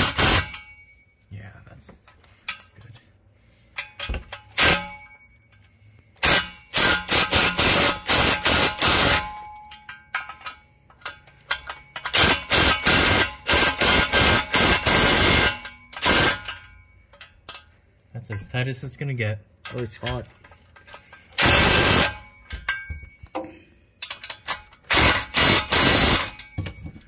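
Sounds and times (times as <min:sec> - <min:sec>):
impact wrench hammering bolts: 0:00.0 - 0:00.9, 0:03.8 - 0:18.5, 0:19.7 - 0:27.0.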